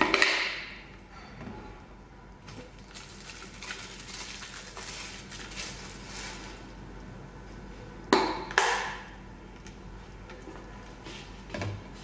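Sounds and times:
plastic containers rustling: 2.5 - 6.7.

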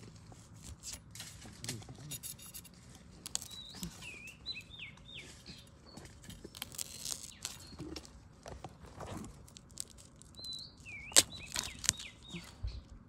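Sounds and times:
bamboo shoot cracking: 3.2 - 4.1, 6.1 - 12.6
bird whistling: 10.4 - 12.5
blade chopping bamboo: 11.0 - 12.1.

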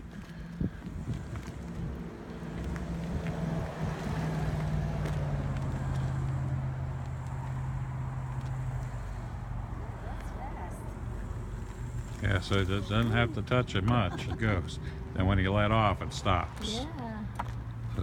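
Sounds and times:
mobility scooter motor hum: 11.0 - 14.3.

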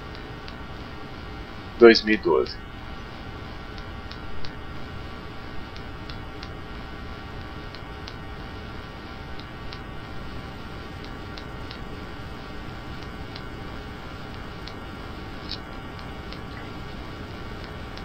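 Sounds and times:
steady hum: 0.0 - 18.0
faint clicks: 3.7 - 4.6, 7.4 - 8.2, 9.3 - 9.9, 11.0 - 11.9, 15.4 - 16.8.

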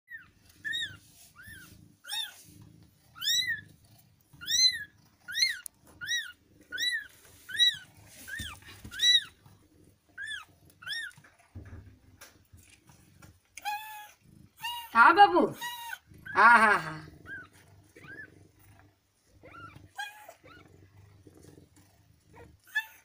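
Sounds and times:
kitten mewing: 13.6 - 18.3.

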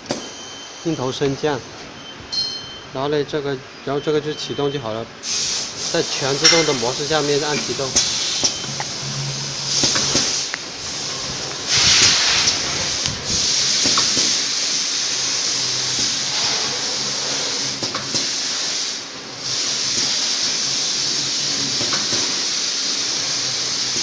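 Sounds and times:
steady air hiss: 5.2 - 24.0.

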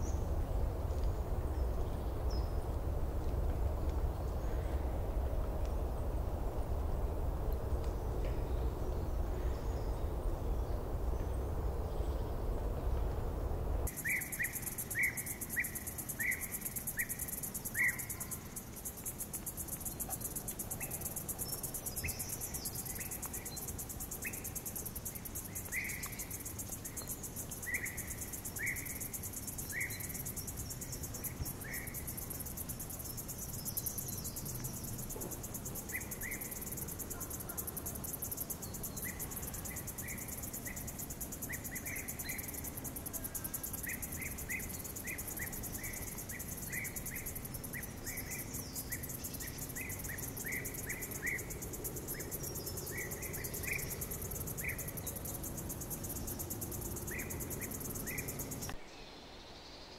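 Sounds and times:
insects shrilling: 27.6 - 58.8.

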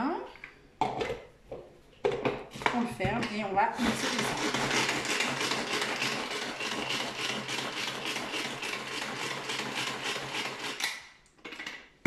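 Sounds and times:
pull-cord food chopper: 3.8 - 11.7.

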